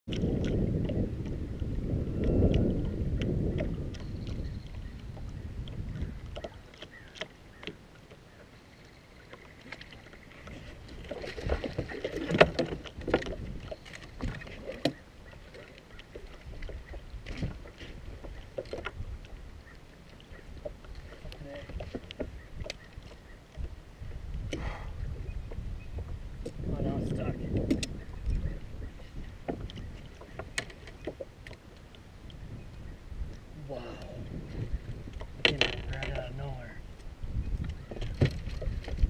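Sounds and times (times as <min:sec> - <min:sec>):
boat wash rumbling: 0:00.1 - 0:39.0
fishing gear clicks and knocks: 0:09.3 - 0:19.0, 0:29.5 - 0:31.7, 0:35.1 - 0:36.4.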